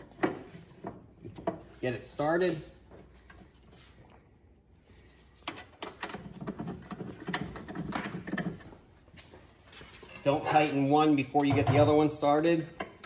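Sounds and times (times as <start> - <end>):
bolt clicking and rattling: 11.3 - 11.9.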